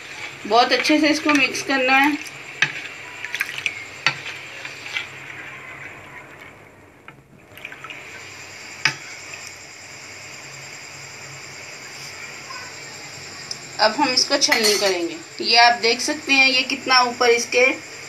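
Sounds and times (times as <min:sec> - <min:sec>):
liquid swishing: 0:00.0 - 0:08.3
spoon clinking against dish: 0:14.5 - 0:15.0.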